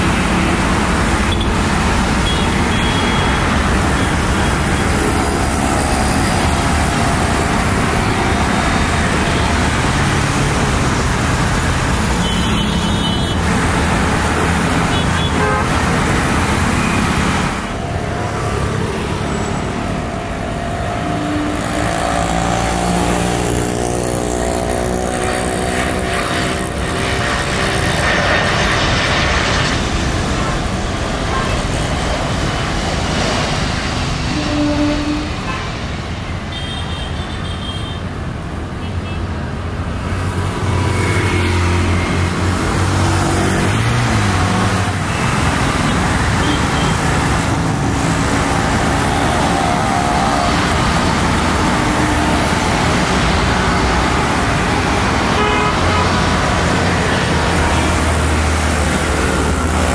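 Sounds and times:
jet engine whine: 0.0s - 24.2s, 24.8s - 38.7s, 40.0s - 59.9s
jet airliner engine roar: 0.0s - 59.9s.

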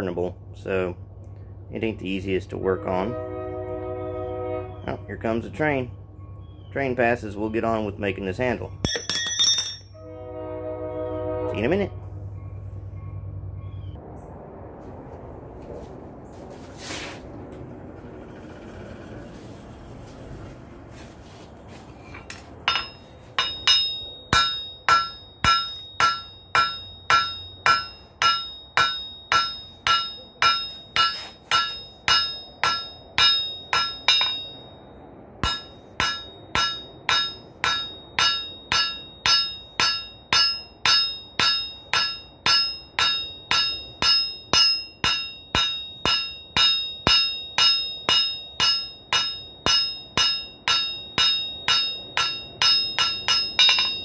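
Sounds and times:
hammer striking metal on anvil: 8.8s - 10.0s, 22.2s - 34.8s, 35.4s - 54.0s.

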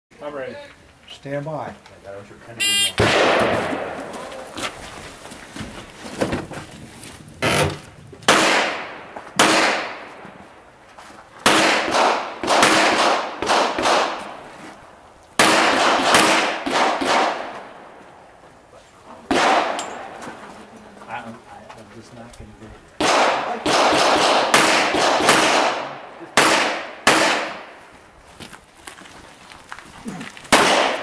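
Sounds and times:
handgun shots ringing: 19.3s - 20.2s, 30.6s - 31.0s.

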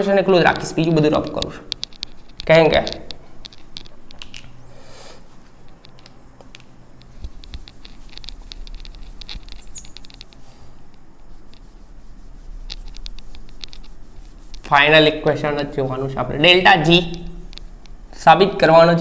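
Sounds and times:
cloth wiping on glass: 7.2s - 15.4s.

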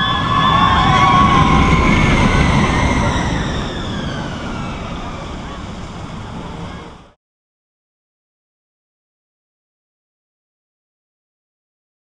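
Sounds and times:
high wailing tones: 0.0s - 7.2s
roller coaster rumbling on track: 0.0s - 7.2s.

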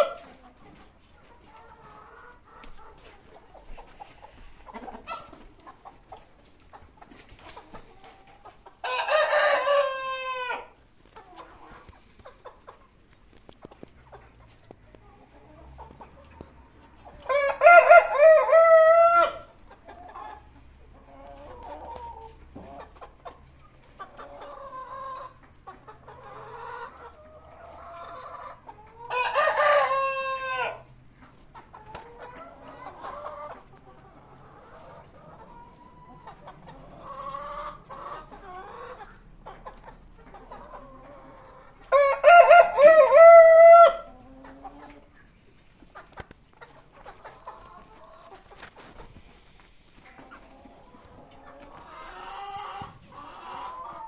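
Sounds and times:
hens clucking quietly: 0.0s - 54.0s
rooster crowing: 8.9s - 10.7s, 17.3s - 19.5s, 41.9s - 44.1s.

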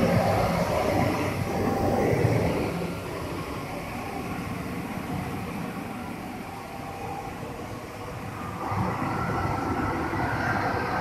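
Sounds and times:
glass washing machine running: 0.0s - 7.6s.

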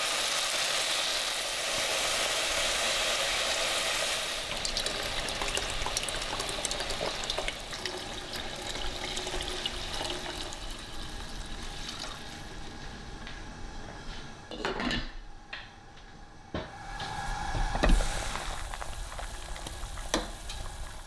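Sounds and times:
liquid pouring into pot: 4.4s - 12.4s.

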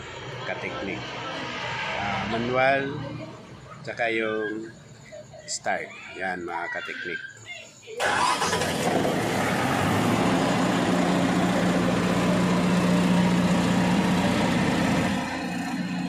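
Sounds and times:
generator engine starting and running: 8.0s - 16.0s.

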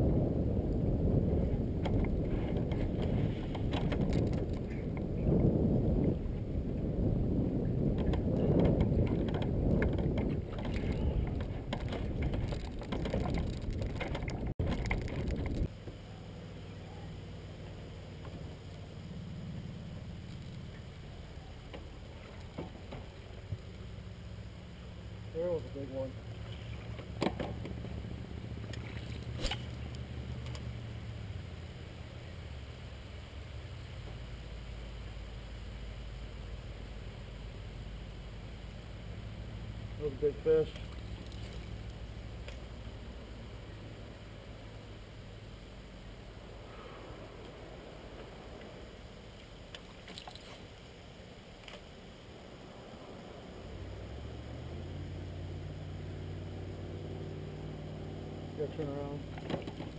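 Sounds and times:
wind rumbling on microphone: 0.0s - 15.8s
low steady rumble: 0.0s - 59.9s
water lapping against metal hull: 7.9s - 15.7s, 20.3s - 23.9s, 26.0s - 30.0s.

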